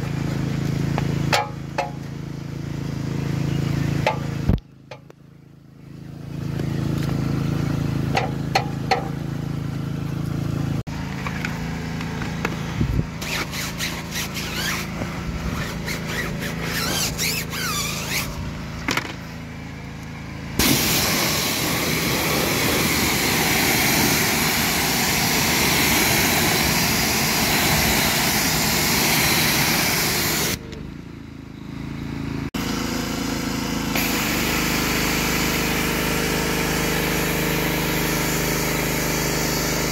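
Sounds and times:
pressure washer motor hum: 0:00.0 - 0:05.1, 0:06.1 - 0:30.9, 0:31.8 - 0:39.9
spray gun hissing: 0:20.6 - 0:30.6, 0:34.0 - 0:39.9.

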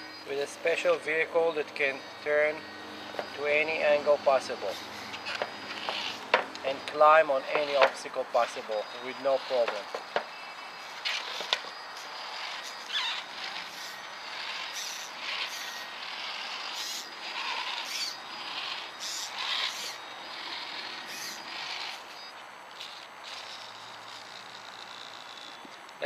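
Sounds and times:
faint high-pitched whine: 0:00.0 - 0:26.0
toy car motor and servos whirring: 0:00.0 - 0:26.0.

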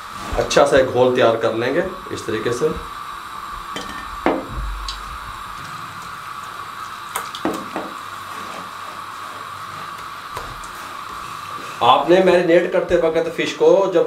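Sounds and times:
steady background hum: 0:00.0 - 0:14.0
mug knocking against bowl: 0:07.4 - 0:08.0.

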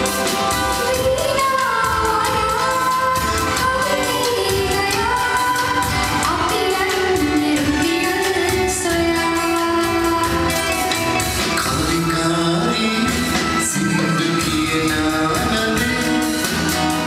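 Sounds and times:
live band music: 0:00.0 - 0:17.0
woman singing: 0:00.1 - 0:16.1.

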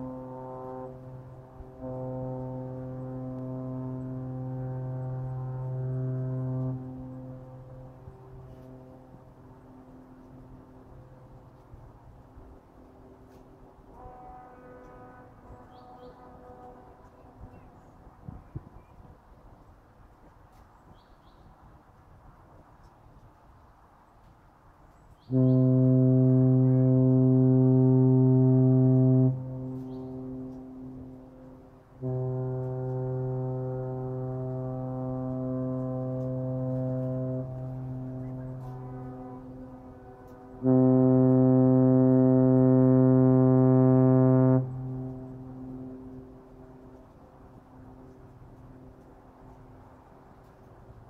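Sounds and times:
ship air horn blast: 0:00.0 - 0:20.6, 0:25.2 - 0:51.0.

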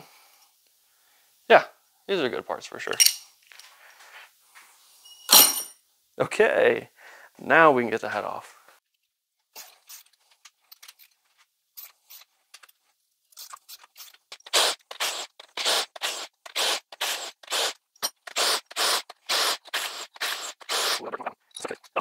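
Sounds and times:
tool handling clicks and knocks: 0:02.9 - 0:03.7.

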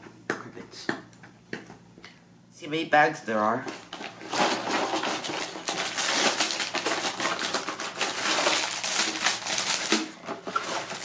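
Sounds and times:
plastic bags crinkling: 0:03.9 - 0:11.0.

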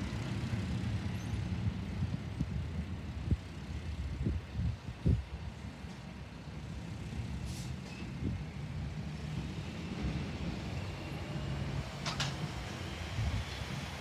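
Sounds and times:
garbage truck engines rumbling: 0:00.0 - 0:14.0
air brake hiss: 0:07.4 - 0:08.0.

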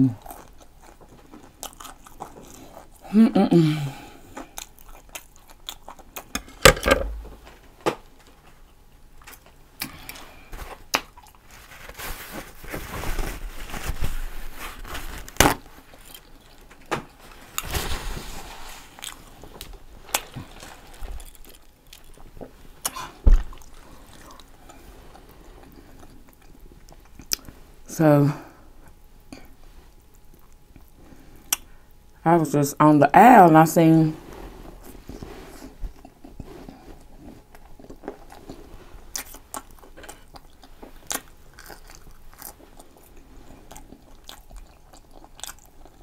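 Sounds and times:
paper wrapper rustling: 0:11.4 - 0:15.9.

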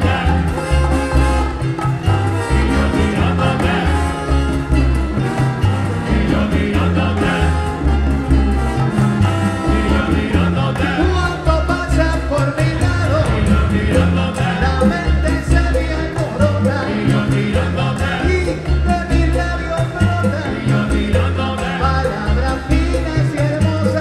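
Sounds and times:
live salsa band playing: 0:00.0 - 0:24.0
man singing: 0:06.2 - 0:07.9, 0:09.8 - 0:24.0.

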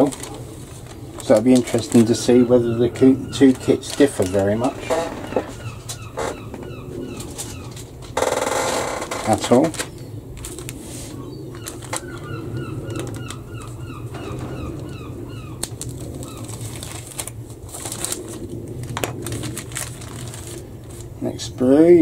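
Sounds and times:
plastic bags crinkling: 0:00.0 - 0:05.9, 0:07.2 - 0:21.2
bird chirping: 0:01.8 - 0:08.1, 0:11.1 - 0:16.6.

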